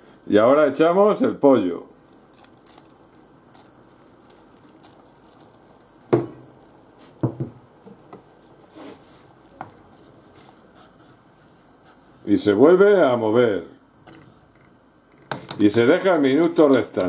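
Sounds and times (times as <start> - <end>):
wooden spoon stirring soup: 2.0 - 12.3
knocks against pot: 6.1 - 6.4, 7.2 - 7.6.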